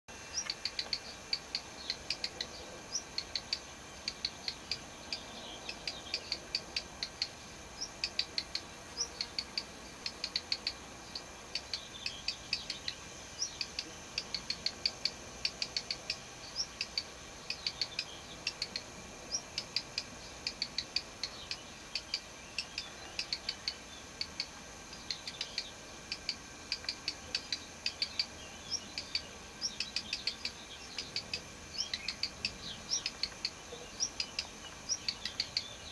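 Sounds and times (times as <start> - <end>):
bird ticking calls: 0.2 - 35.9.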